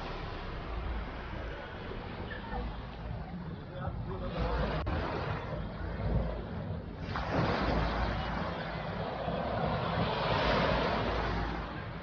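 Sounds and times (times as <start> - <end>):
wind buffeting microphone: 0.6 - 12.0
small waves breaking on sand: 7.0 - 12.0.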